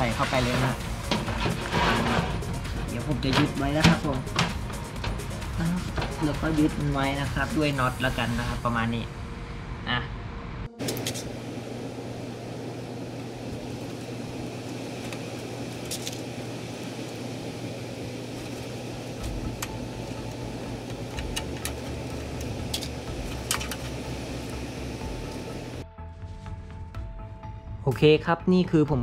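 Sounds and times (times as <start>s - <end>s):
steady background hum: 0.0s - 25.8s.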